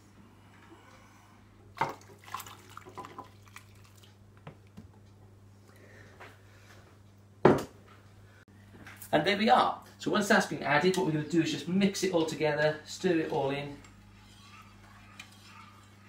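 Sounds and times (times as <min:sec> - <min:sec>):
faint liquid trickling: 0:01.8 - 0:04.2
syrup splashing and dripping: 0:01.8 - 0:04.2
knock on pot: 0:07.4 - 0:07.7.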